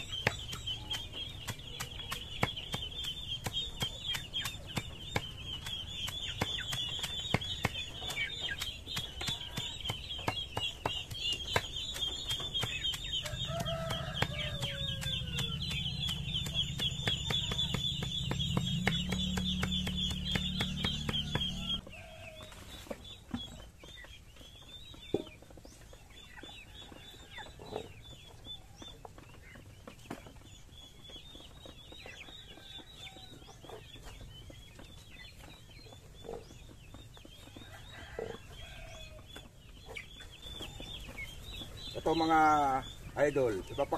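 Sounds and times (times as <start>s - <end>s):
blade chopping on wood: 0.0s - 21.8s
chickens clucking: 0.0s - 43.9s.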